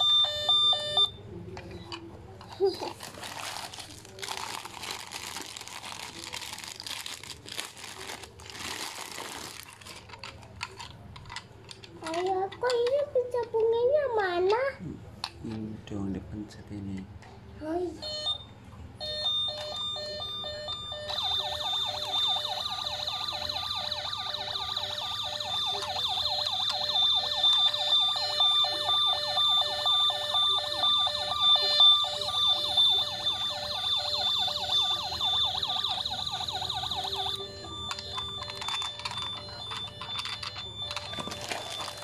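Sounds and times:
toy electronic beeping tones: 0.0 - 1.2, 18.0 - 42.0
toy warbling siren: 0.0 - 1.2, 19.0 - 42.0.

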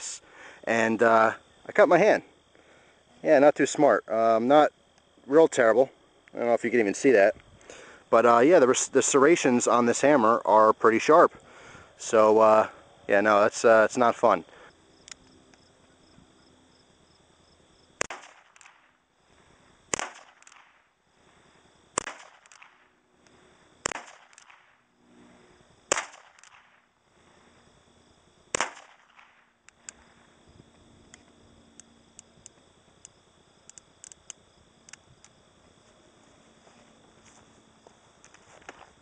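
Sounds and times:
faint small clicks: 15.0 - 15.6, 31.1 - 35.4.

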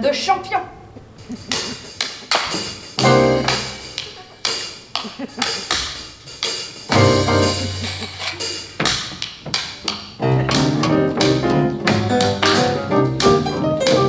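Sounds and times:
cabaret band music: 1.0 - 14.0
sharp percussive hits: 1.4 - 14.0.

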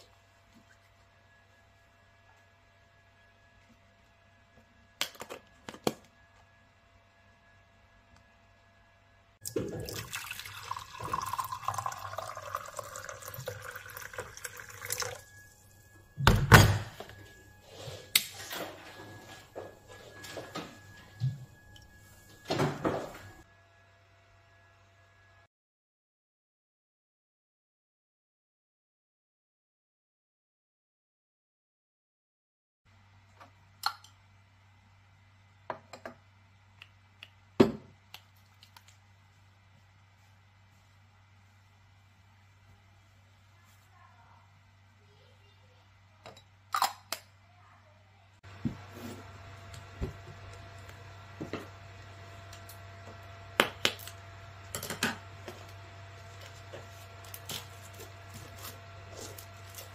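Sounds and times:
hot water pouring into mug: 9.4 - 15.6.

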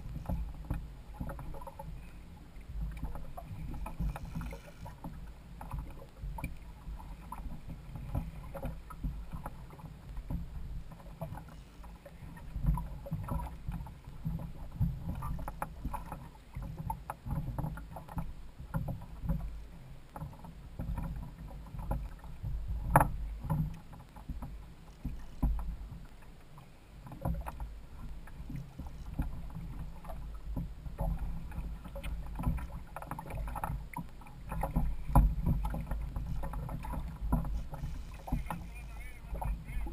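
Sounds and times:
water slapping kayak hull: 0.0 - 39.9
steady low rumble: 33.4 - 39.9.

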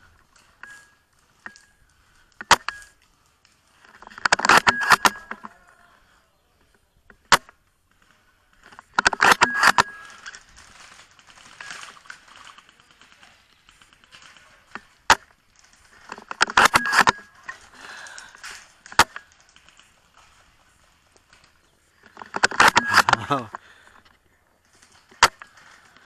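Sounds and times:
airsoft rifle shots: 4.0 - 5.4, 22.3 - 23.4.

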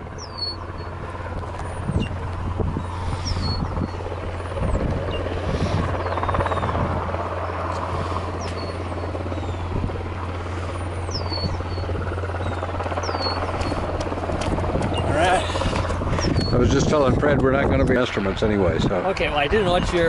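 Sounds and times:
steady low hum: 0.0 - 20.0
wind buffeting microphone: 0.0 - 20.0
bird whistled chirps: 0.2 - 0.9, 3.2 - 4.0.

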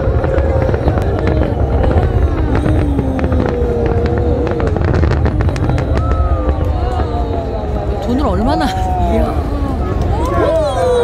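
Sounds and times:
firework shell bursts rumbling: 0.0 - 7.3
fireworks crackling: 0.0 - 11.0.

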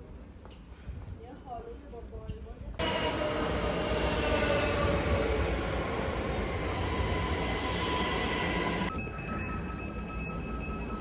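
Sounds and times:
train wheels rumbling on rail: 2.7 - 11.0.

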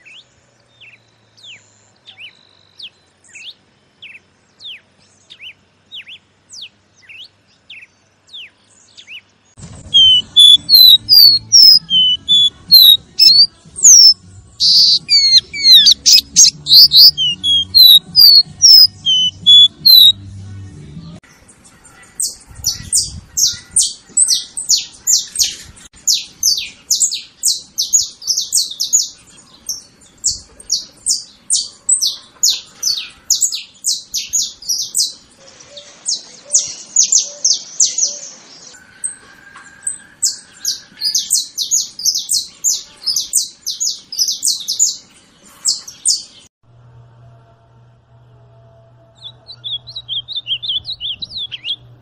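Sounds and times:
finch singing: 0.0 - 20.2, 39.9 - 46.5, 49.2 - 52.0.

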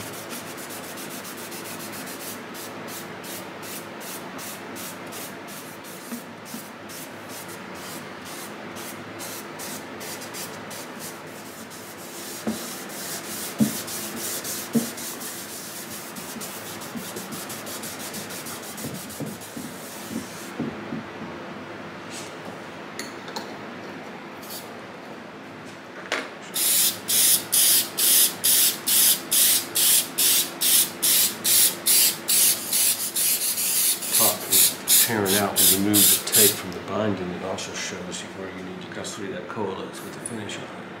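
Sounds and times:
cotton pad rubbing wood: 10.2 - 20.4.

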